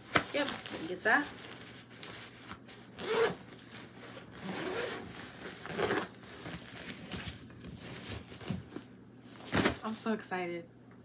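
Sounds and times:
fabric rubbing: 0.1s - 8.5s
zipper rasping: 3.0s - 7.2s.

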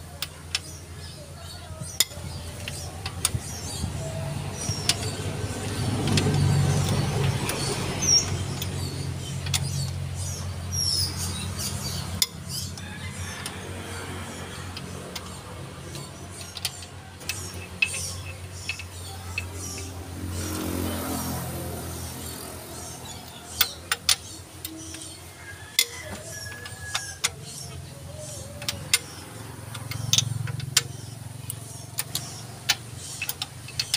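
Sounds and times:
socket wrench clicking: 4.6s - 10.0s, 14.7s - 19.9s, 23.2s - 33.9s.

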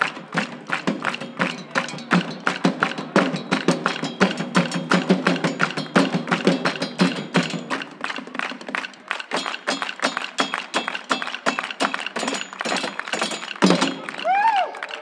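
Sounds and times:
crowd shouting: 13.9s - 15.0s.

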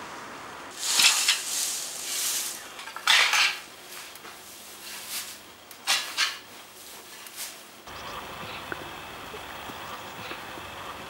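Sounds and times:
pitchfork tossing dry straw: 0.7s - 7.7s.

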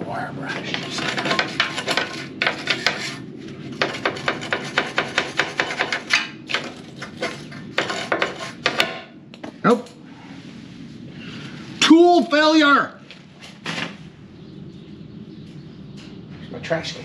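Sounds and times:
wire brush scrubbing metal: 0.7s - 8.8s.

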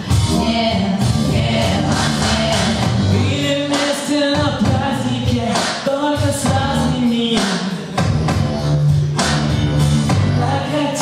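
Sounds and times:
woman singing into microphone: 0.0s - 8.1s, 10.4s - 11.0s
pop backing music with bass: 0.0s - 11.0s
man singing: 0.3s - 8.4s, 10.4s - 11.0s.

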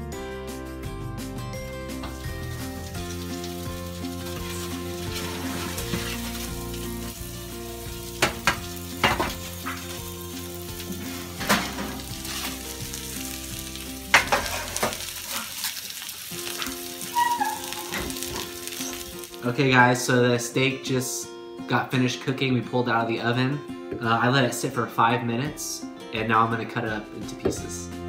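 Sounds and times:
food sizzling on baking sheets: 2.0s - 19.7s.

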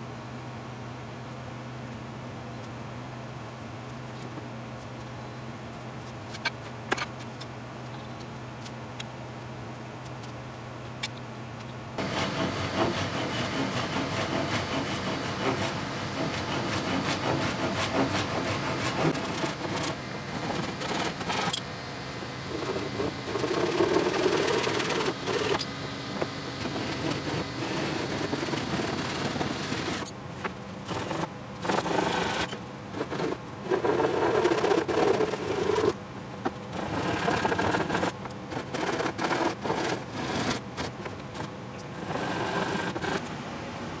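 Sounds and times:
hand saw cutting wood: 12.0s - 21.6s, 22.5s - 30.1s, 30.9s - 36.0s, 36.8s - 43.2s
tool rubbing along wood: 12.0s - 21.6s, 22.5s - 30.1s, 30.9s - 36.0s, 36.7s - 43.2s.

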